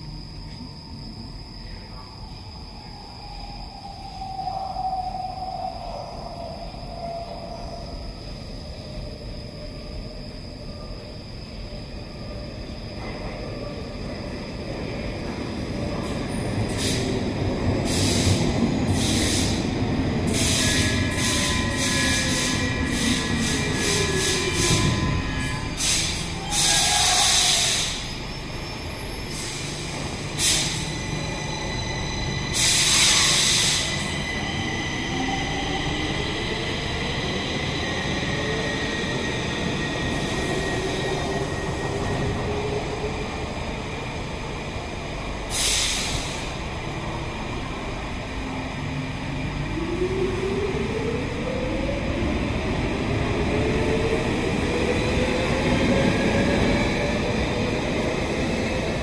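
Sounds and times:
metro train rumble and motor whine: 0.0 - 59.0
air hisses: 16.7 - 17.2, 17.8 - 19.7, 25.8 - 28.1, 30.4 - 30.9, 32.5 - 34.2, 45.5 - 46.6.

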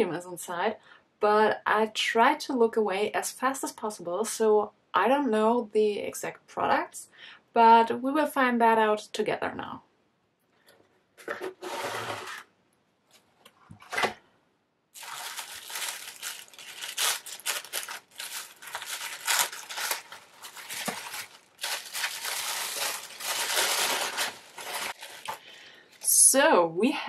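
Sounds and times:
cardboard box scraping: 11.2 - 12.4
tissue paper crinkling: 15.0 - 26.0.

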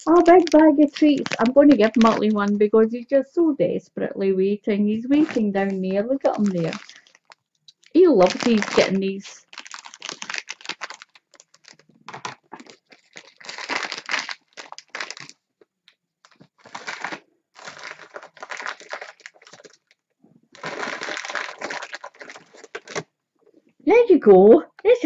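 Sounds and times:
treat bag crinkling: 0.0 - 2.6, 5.1 - 15.4, 16.2 - 23.1.

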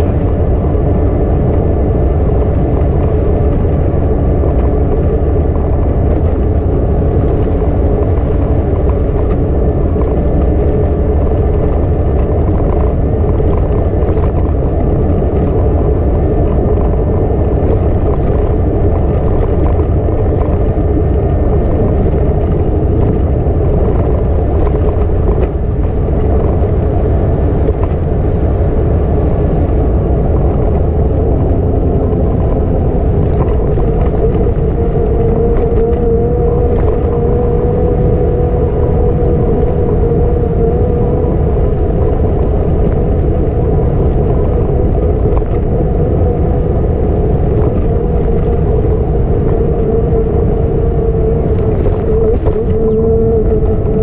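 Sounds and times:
low hum: 0.0 - 54.0
mid-pitched hum: 0.0 - 54.0
wind rumble on microphone: 0.0 - 54.0.

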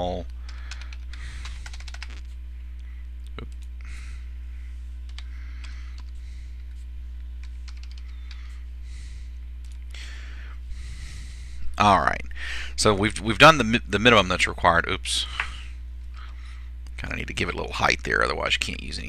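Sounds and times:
low electrical hum: 0.0 - 19.0
keyboard typing: 0.5 - 2.3, 5.1 - 6.2, 7.4 - 8.5.

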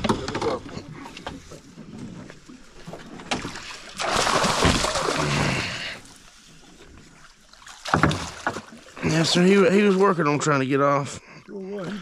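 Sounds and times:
fish splashing in water: 2.9 - 6.1.

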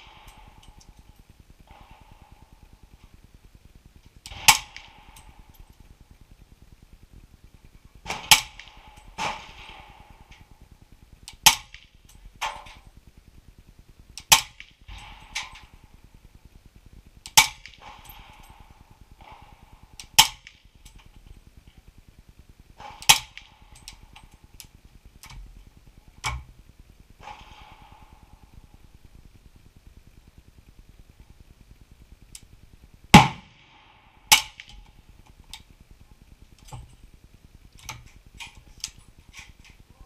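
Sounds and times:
suppressed rifle shots: 0.0 - 6.2, 8.0 - 13.0, 14.2 - 16.2, 17.2 - 21.4, 22.6 - 29.6, 33.1 - 35.8.

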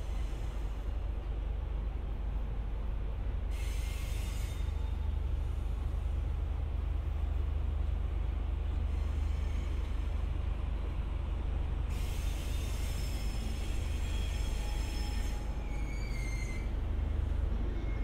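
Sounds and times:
train rumbling slowly: 0.0 - 18.0
high-pitched wheel squeals: 12.2 - 16.8.

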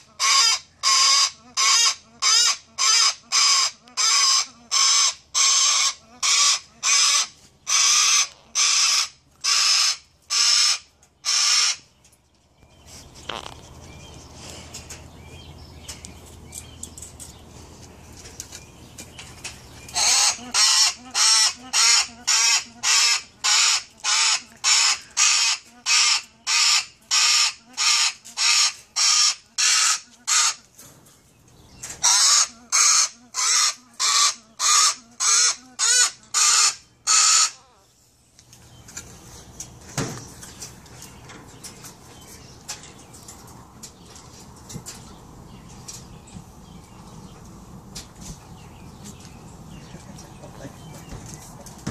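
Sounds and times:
parrot squawking: 0.2 - 11.8, 20.0 - 30.6, 32.0 - 37.8.

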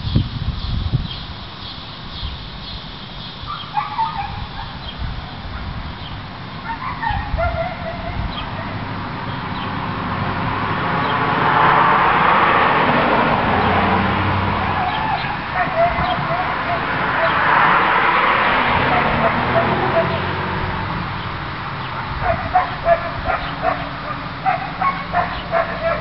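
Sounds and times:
steady outdoor noise: 0.0 - 26.0
animal calls: 3.5 - 9.8, 14.4 - 20.9, 21.8 - 26.0.

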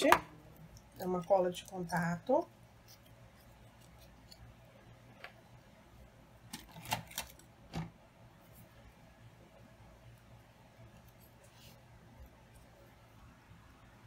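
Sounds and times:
faint room hum: 0.0 - 14.0.

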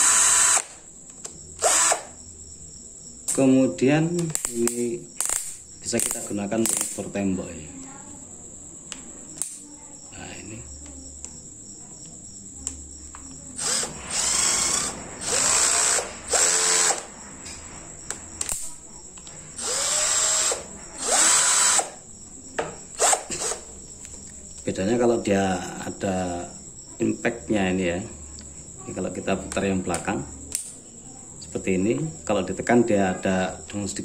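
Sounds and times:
cordless drill motor spinning: 0.0 - 0.8, 1.6 - 2.1, 13.6 - 17.1, 19.6 - 22.0, 23.0 - 23.6
sharp single clicks: 4.2 - 7.0, 8.9 - 9.6, 30.5 - 30.8.

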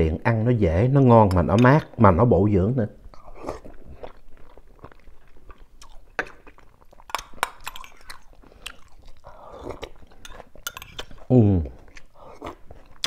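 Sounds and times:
wet chewing: 3.1 - 13.0.

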